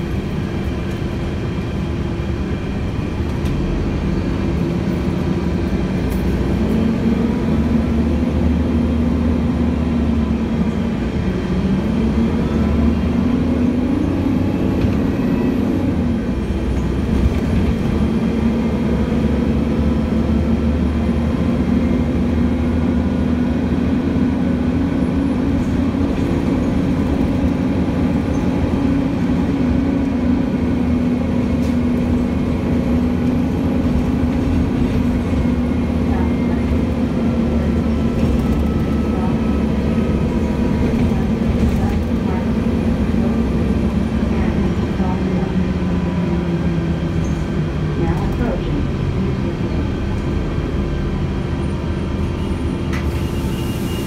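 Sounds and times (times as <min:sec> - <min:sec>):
bus diesel engine driving: 0:00.0 - 0:54.0.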